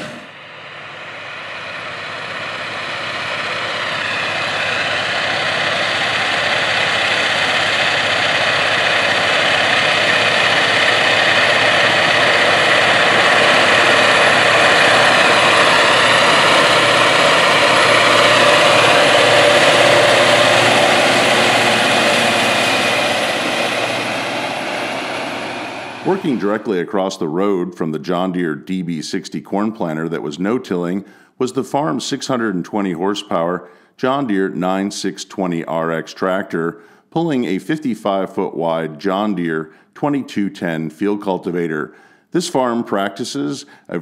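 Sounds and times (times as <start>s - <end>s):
tractor running under load: 0.0s - 27.1s.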